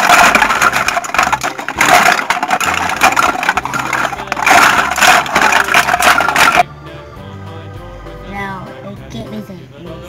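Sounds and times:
plastic toys clattering in a tub: 0.0 - 6.7.

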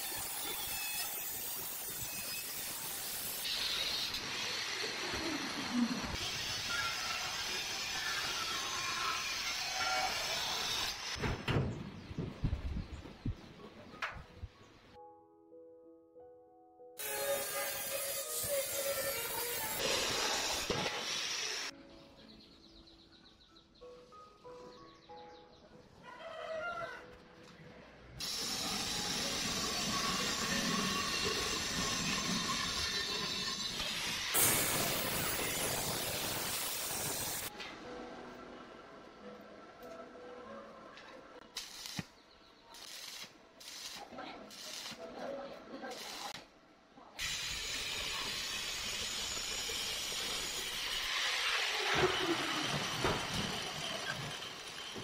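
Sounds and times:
angle grinder cutting steel: 0.0 - 11.2, 17.0 - 21.7, 28.2 - 37.5, 42.8 - 45.0, 47.2 - 55.0.

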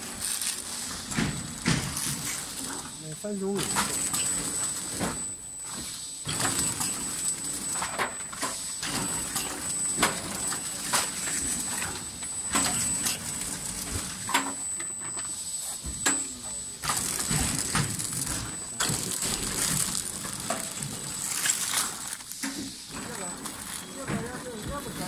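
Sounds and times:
machine whining: 0.0 - 25.0
machine clacks and knocks: 1.1 - 2.4.

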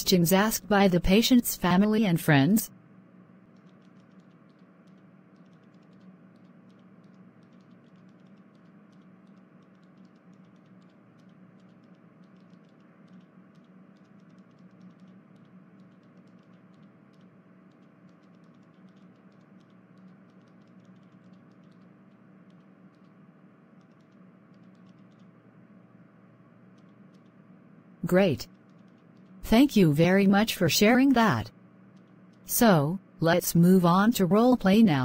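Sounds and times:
steady low hum: 0.0 - 35.0
rapid irregular clicking: 3.4 - 25.5, 26.6 - 27.5, 28.4 - 29.4, 31.8 - 32.5.

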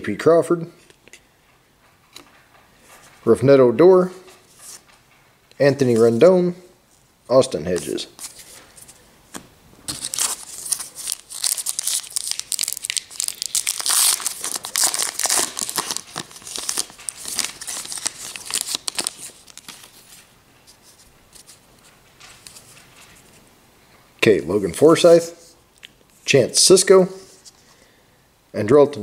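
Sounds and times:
wrapper tearing and crinkling: 9.9 - 20.1.

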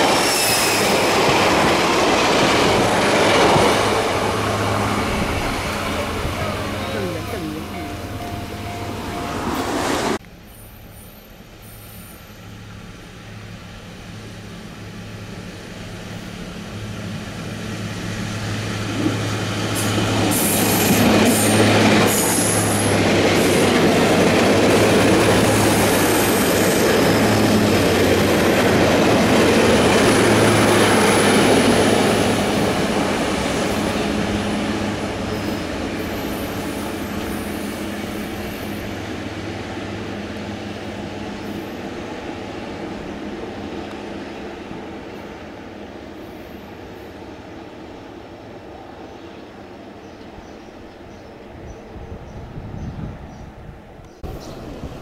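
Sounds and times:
train engine hum: 0.0 - 55.0
wheels rumbling on rail: 0.0 - 55.0
high-pitched wheel squeals: 0.2 - 1.1, 9.2 - 12.6.

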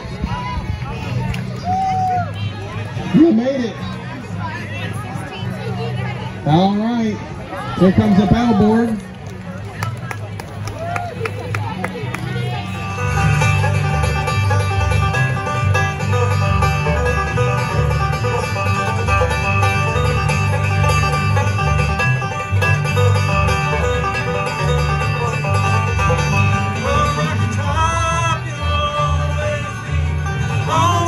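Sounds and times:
upright bass: 2.4 - 31.0
strummed acoustic guitars: 11.6 - 31.0
banjo picking: 12.0 - 31.0.

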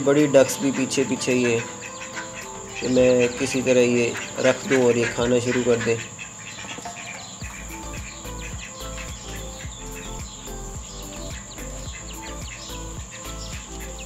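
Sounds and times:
ducklings peeping: 0.0 - 14.0
high-pitched whine: 0.0 - 14.0
background music with bass line: 7.4 - 14.0.

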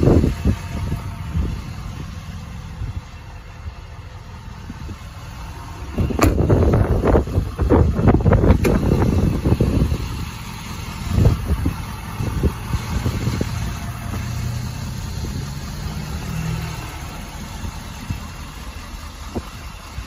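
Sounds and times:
diesel engine idling: 0.0 - 20.0
thump: 6.0 - 6.7.

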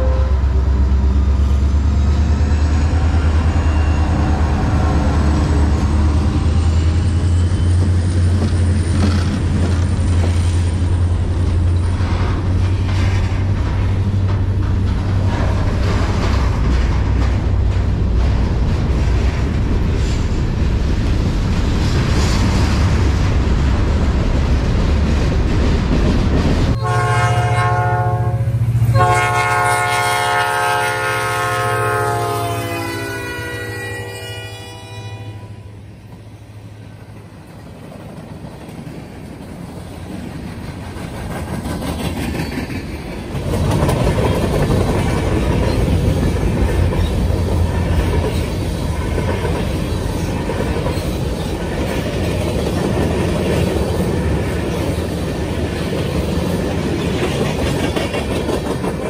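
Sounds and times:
locomotive air horn chord: 0.0 - 0.7, 26.8 - 35.9
diesel locomotives rumbling: 0.0 - 59.0
freight cars rolling on rails: 0.0 - 59.0.

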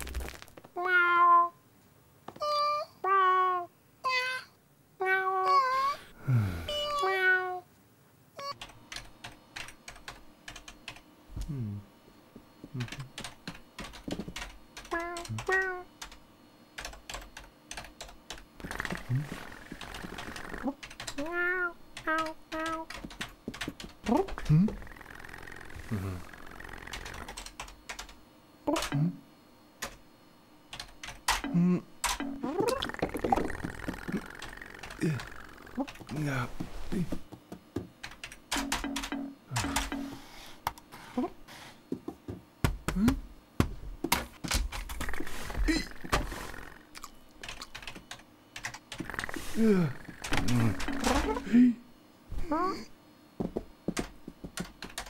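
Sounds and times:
cartoon cat meowing: 0.8 - 1.6, 2.4 - 6.0, 21.2 - 22.8
computer keyboard typing: 8.6 - 11.0, 12.8 - 16.2, 16.8 - 21.3, 22.0 - 24.5, 26.5 - 28.2, 30.7 - 36.1, 38.0 - 40.2, 47.4 - 49.2, 54.0 - 55.0.

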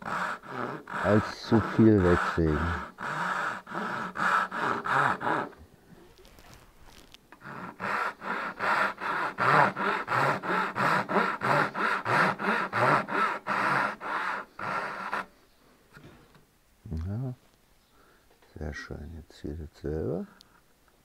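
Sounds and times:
hand saw cutting wood: 0.0 - 5.6, 7.4 - 15.3.

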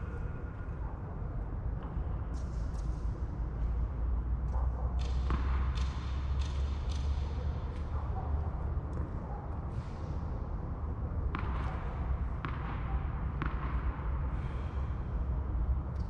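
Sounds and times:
tennis ball hitting racket: 13.4 - 13.7.

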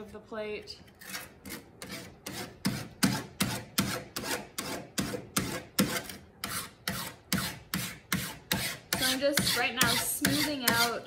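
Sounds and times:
hand file on copper plate: 1.0 - 11.0.

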